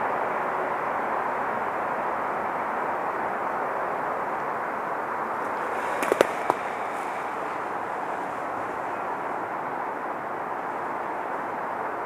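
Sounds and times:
steady background hiss: 0.0 - 12.0
sharp pops: 5.4 - 7.7.

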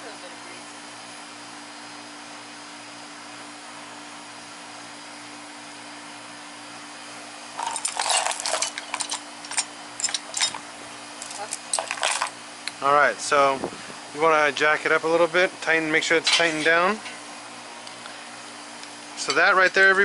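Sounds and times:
steady low hum: 0.0 - 20.0
metal tools clinking and rattling: 7.6 - 10.6, 11.2 - 12.4, 16.2 - 17.2, 19.2 - 19.5.

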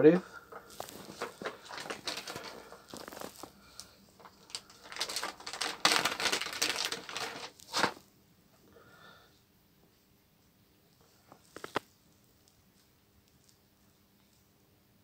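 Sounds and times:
plastic packaging crinkling: 0.5 - 8.0, 11.5 - 11.8.

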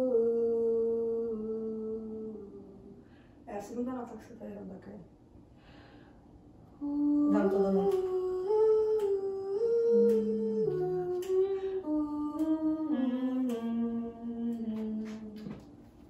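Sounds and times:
voices humming in harmony: 0.0 - 3.2, 6.8 - 15.8.

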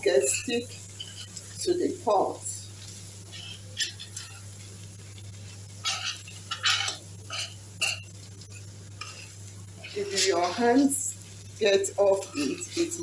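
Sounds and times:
low sizzle: 0.0 - 13.0
steady low hum: 0.0 - 13.0
metal spoon scraping a pot: 0.1 - 1.6, 3.2 - 4.7, 5.8 - 10.9, 12.0 - 13.0.

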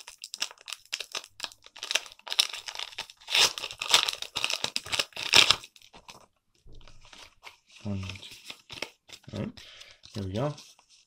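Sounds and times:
foil wrapper crinkling: 0.0 - 6.3.

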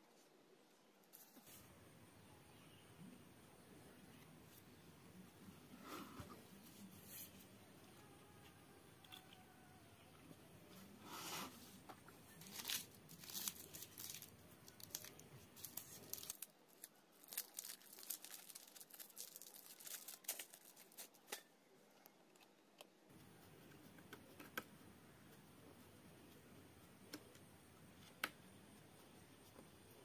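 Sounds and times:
foil packet crinkling and tearing: 12.3 - 21.5.

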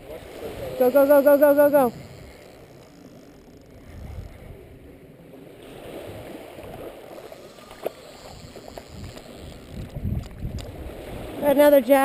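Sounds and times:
wind on microphone: 0.0 - 5.0, 8.1 - 12.0
small waves lapping: 0.0 - 12.0.

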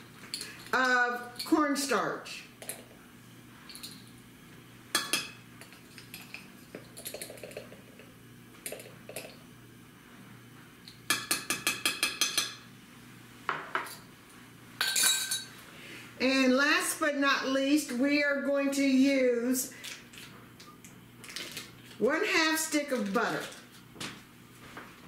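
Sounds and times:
metal spoons clinking on saucepan: 11.1 - 12.6, 14.8 - 15.5.

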